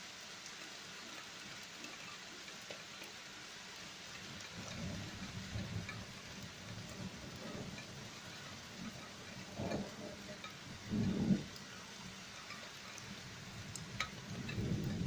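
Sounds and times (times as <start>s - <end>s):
rain hissing: 0.0s - 15.0s
distant thunder rumbling: 4.5s - 15.0s.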